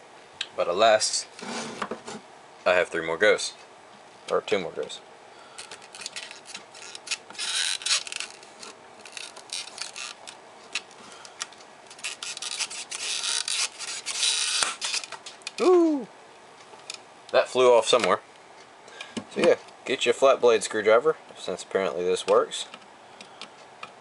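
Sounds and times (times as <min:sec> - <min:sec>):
screwdriver scraping plastic clip: 0:05.6 - 0:08.4, 0:11.9 - 0:15.1
short vocal exclamation: 0:15.6 - 0:16.1.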